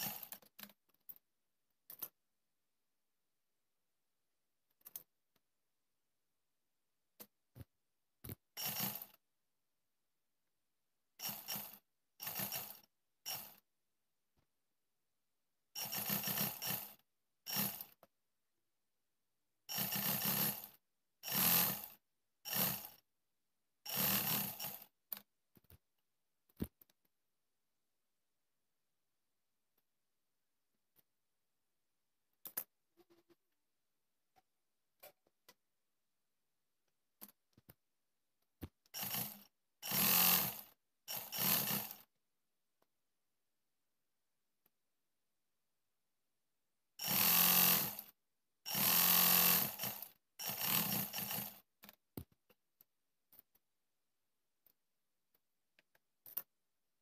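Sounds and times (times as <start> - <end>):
sewing machine stitching: 0.0 - 0.8, 8.3 - 9.2, 11.2 - 13.6, 15.8 - 18.1, 19.7 - 23.0, 23.9 - 25.2, 38.9 - 42.1, 47.0 - 51.8.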